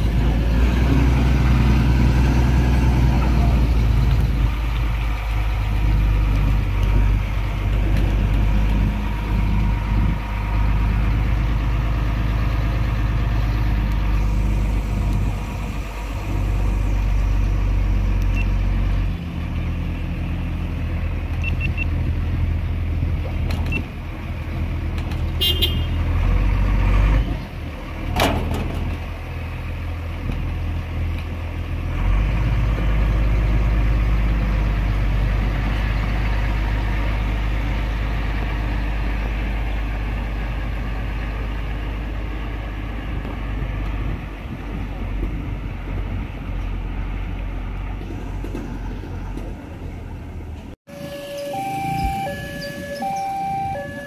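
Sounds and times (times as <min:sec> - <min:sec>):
diesel truck engine running: 0:00.0 - 0:54.0
horn toot: 0:25.4 - 0:26.0.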